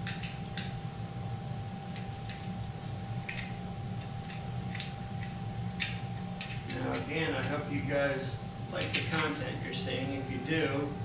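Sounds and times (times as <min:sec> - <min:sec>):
low hum with faint tone: 0:00.0 - 0:11.0.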